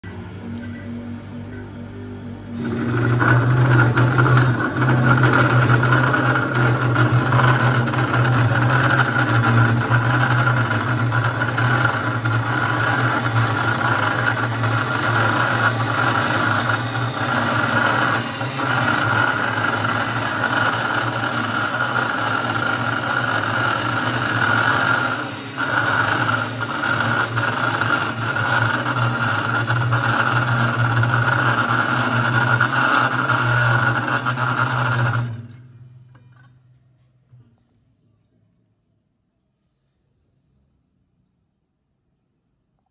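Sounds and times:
cold saw cutting metal pipe: 0:02.6 - 0:35.6.

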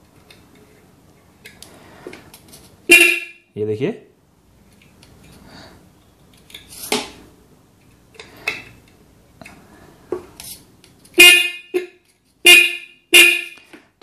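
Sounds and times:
loud horn honk: 0:02.9 - 0:03.5, 0:11.2 - 0:13.6.

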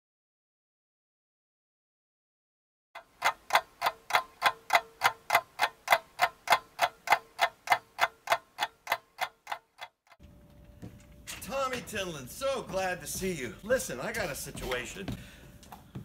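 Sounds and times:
clock ticking: 0:03.0 - 0:10.2.

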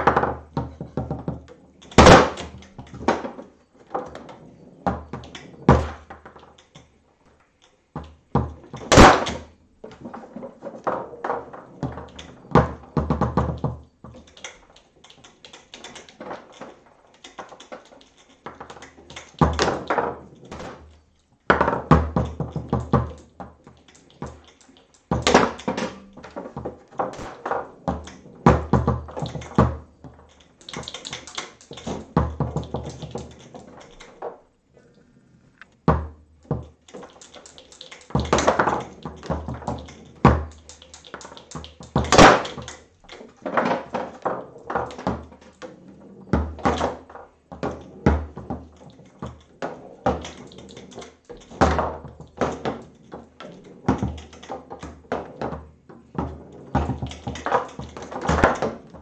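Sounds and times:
foosball rods clacking: 0:00.0 - 0:34.5, 0:35.6 - 0:59.0
foosball ball taps and knocks: 0:25.1 - 0:33.8.

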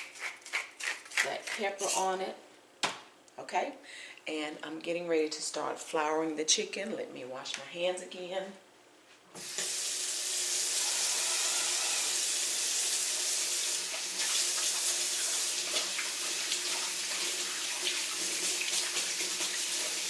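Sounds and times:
faucet running with splashes: 0:09.4 - 0:20.0.

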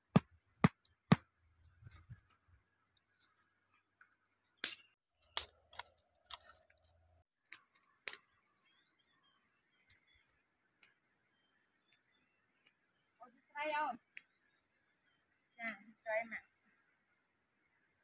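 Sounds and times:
dry sticks clacking and snapping: 0:04.6 - 0:08.2.

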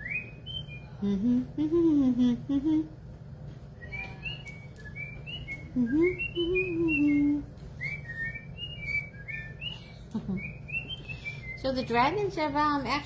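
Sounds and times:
person humming: 0:01.0 - 0:03.0, 0:05.7 - 0:07.5.

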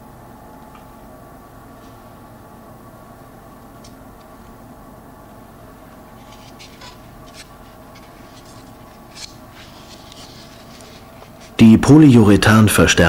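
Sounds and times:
plaster scratching and crackling: 0:06.1 - 0:11.6.

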